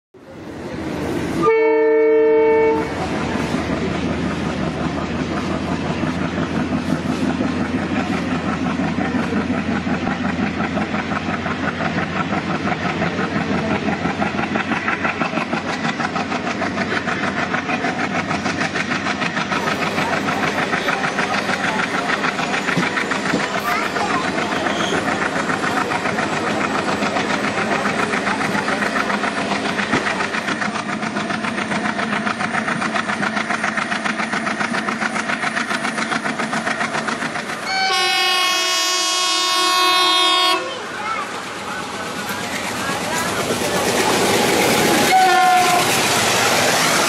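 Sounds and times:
train wheels on rails: 0:00.2 - 0:01.8, 0:02.4 - 0:47.0
train horn: 0:01.4 - 0:03.0, 0:37.6 - 0:40.8, 0:45.0 - 0:46.0.

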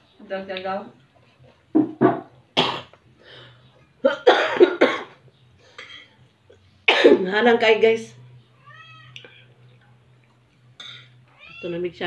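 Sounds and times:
woman coughing: 0:02.6 - 0:03.0, 0:04.0 - 0:05.2, 0:06.9 - 0:07.2.

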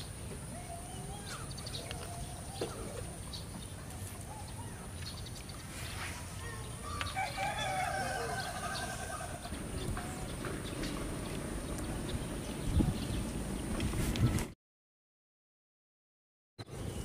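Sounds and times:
rooster crowing: 0:06.8 - 0:09.5.

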